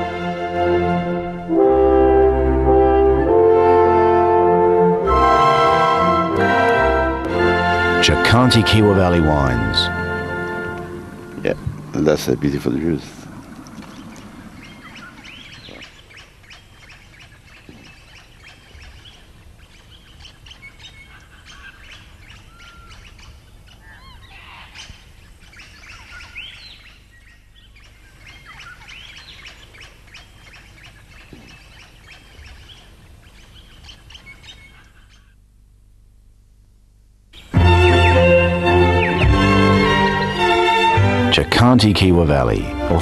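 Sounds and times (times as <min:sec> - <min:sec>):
birds chirping and calling: 0:08.1 - 0:35.4, 0:37.4 - 0:41.0.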